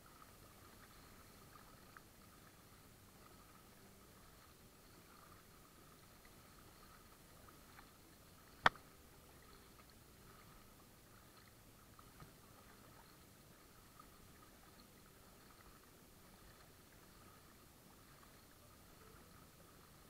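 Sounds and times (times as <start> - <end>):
water lapping around kayak: 0.0 - 20.0
light ticks: 8.6 - 8.9.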